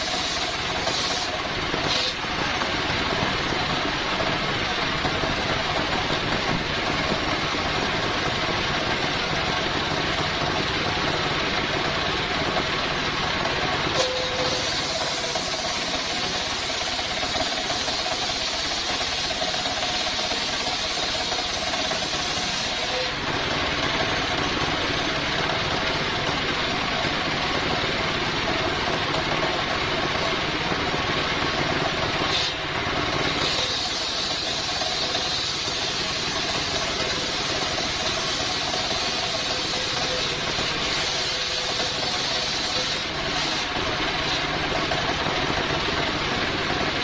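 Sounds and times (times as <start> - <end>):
saw blade cutting wood: 0.0 - 2.7, 13.9 - 23.3, 32.3 - 32.6, 33.2 - 44.5
diesel engine running: 0.0 - 47.0.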